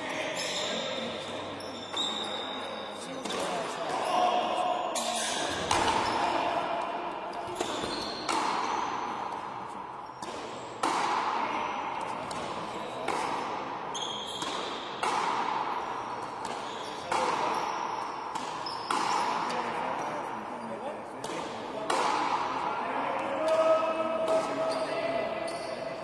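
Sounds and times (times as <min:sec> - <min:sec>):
racket striking rubber ball: 0:05.5 - 0:06.0, 0:06.8 - 0:09.6, 0:10.2 - 0:11.4, 0:12.0 - 0:13.7, 0:14.3 - 0:17.6, 0:18.2 - 0:19.6, 0:21.2 - 0:22.6.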